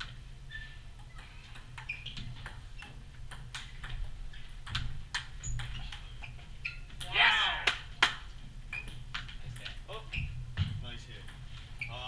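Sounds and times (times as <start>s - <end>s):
table tennis ball clicking: 1.0s - 4.0s.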